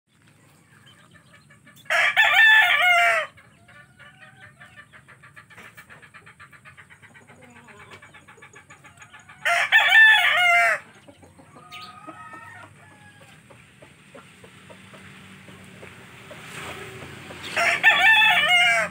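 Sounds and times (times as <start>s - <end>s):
faint hen clucking: 0.1s - 18.9s
rooster crowing: 1.9s - 3.4s, 9.4s - 10.9s, 11.6s - 13.5s, 17.4s - 18.9s.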